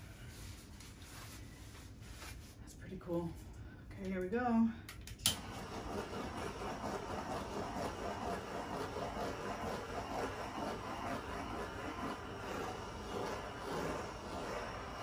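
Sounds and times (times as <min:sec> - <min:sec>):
gas torch clicking alight: 0:04.9 - 0:06.1
torch flame hissing: 0:05.3 - 0:15.0.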